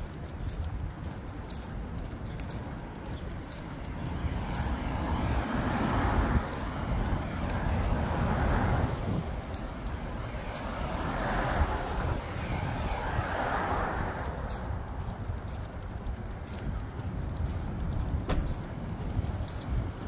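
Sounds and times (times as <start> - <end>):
dog collar jingling: 0.0 - 20.0
car passing: 3.5 - 17.4.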